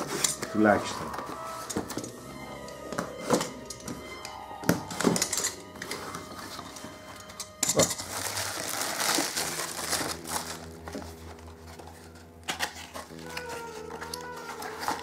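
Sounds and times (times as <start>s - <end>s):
bubble wrap crinkling: 5.9s - 15.0s.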